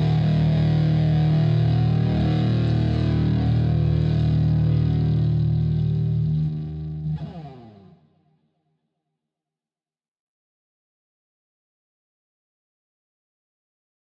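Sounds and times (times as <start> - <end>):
distorted electric guitar chord: 0.0 - 8.2.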